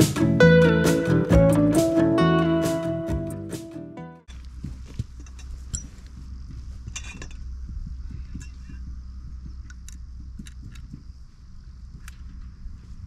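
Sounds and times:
tent pegs clicking: 0:08.1 - 0:11.0.

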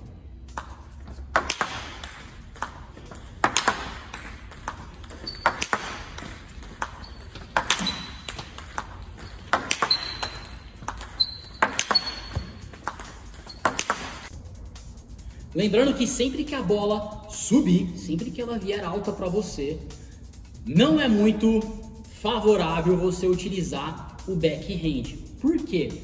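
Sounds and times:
paddle hitting table tennis ball: 0:00.5 - 0:14.3
table tennis ball bouncing: 0:00.5 - 0:14.3
brief high squeaks: 0:07.0 - 0:08.4, 0:09.2 - 0:12.6.

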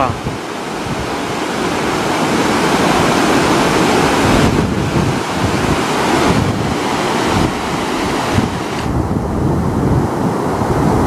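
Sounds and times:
flood water rushing: 0:00.0 - 0:11.0.

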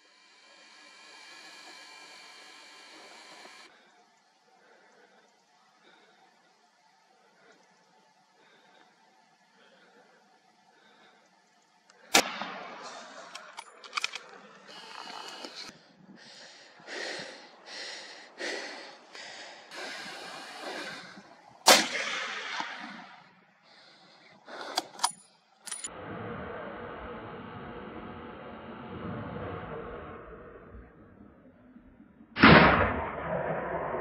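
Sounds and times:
short noisy bursts: 0:00.0 - 0:04.4, 0:12.0 - 0:15.8, 0:16.8 - 0:24.8
steady hiss: 0:00.0 - 0:13.3, 0:14.4 - 0:24.7
loud shotgun shots: 0:21.7 - 0:23.1, 0:32.4 - 0:34.0.

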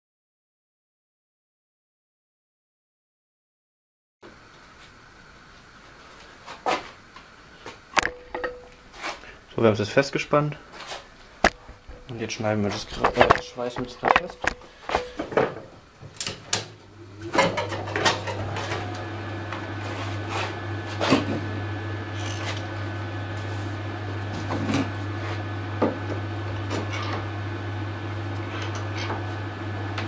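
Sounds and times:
arc welder humming: 0:07.0 - 0:30.0.

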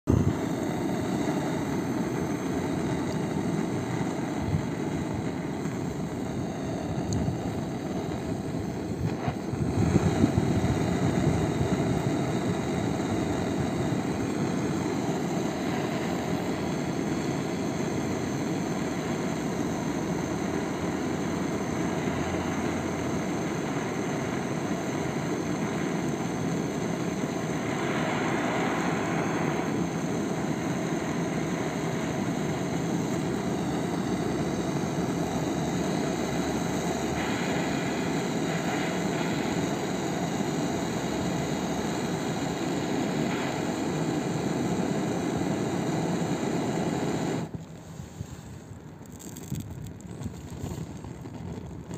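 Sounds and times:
gas torch flame roaring: 0:00.0 - 0:51.9.

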